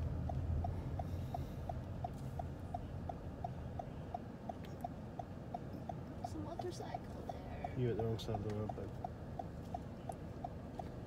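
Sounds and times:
car cabin rumble: 0.0 - 11.0
turn signal ticking: 0.0 - 11.0.

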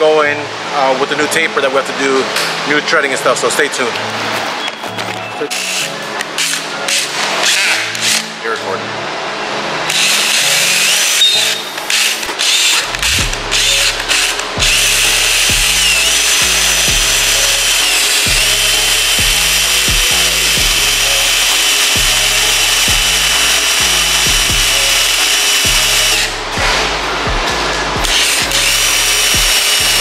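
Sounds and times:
cordless drill whining through metal: 9.9 - 26.4, 28.0 - 30.0
background music with low beat: 9.9 - 30.0.

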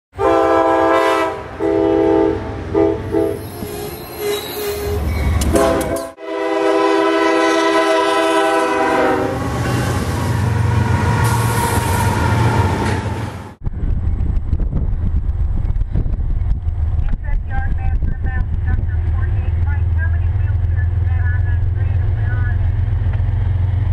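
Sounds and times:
locomotive air horn blasts: 0.2 - 3.6, 4.2 - 10.2
train passing rumble and wheel noise: 0.2 - 23.9.

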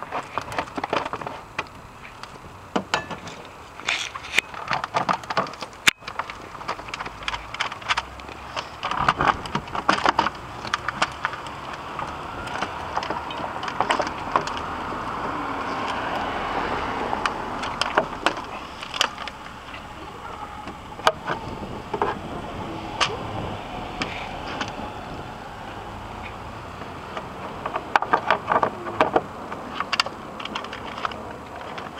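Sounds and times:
steady rushing noise: 0.0 - 31.9
plastic cover clicking and rattling: 2.8 - 14.7, 26.8 - 31.9.

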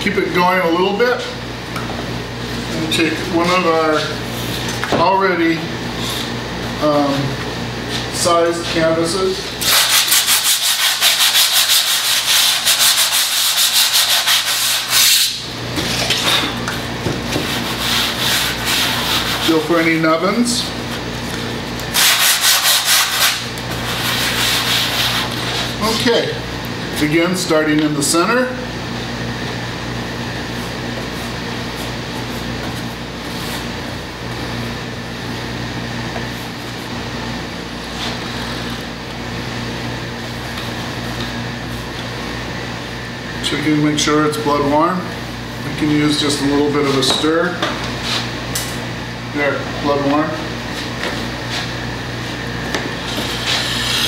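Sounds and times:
low machine hum: 0.0 - 54.0
sandpaper scraping canvas: 9.6 - 15.4, 17.3 - 19.7, 22.0 - 25.7, 53.0 - 54.0.

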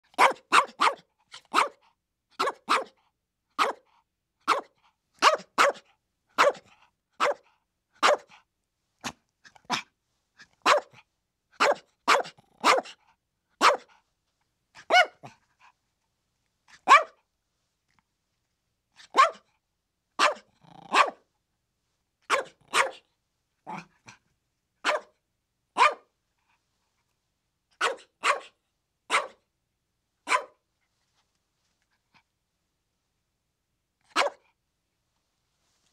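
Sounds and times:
small dog yapping: 0.2 - 1.8, 3.6 - 3.8, 6.4 - 6.6, 11.6 - 13.0, 14.8 - 15.4, 16.8 - 17.2, 19.0 - 19.4, 20.2 - 21.2, 22.3 - 23.0, 24.8 - 25.1, 25.8 - 26.0, 27.8 - 28.5, 30.3 - 30.6, 34.1 - 34.4.

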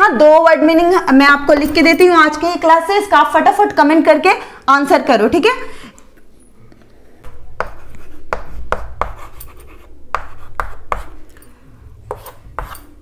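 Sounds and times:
chalk tapping on board: 7.6 - 11.2, 12.1 - 12.9
chalk scratching strokes: 7.6 - 11.3, 12.1 - 13.0.

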